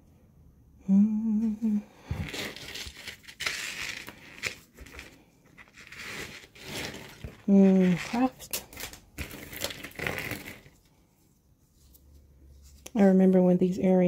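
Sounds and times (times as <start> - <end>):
woman humming: 0.8 - 2.3
packaging crinkling: 2.1 - 10.8.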